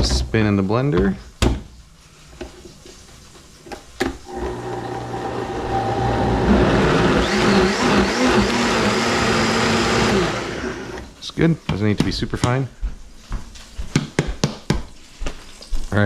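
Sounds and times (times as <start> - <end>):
blender motor running: 4.3 - 11.1.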